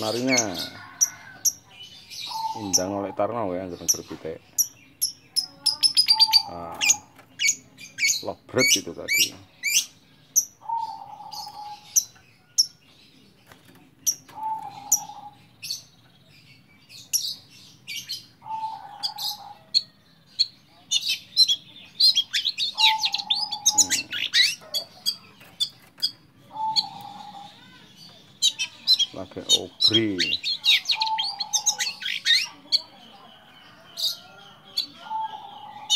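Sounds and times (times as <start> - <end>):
bird singing rapid chirps: 14.0 - 35.9.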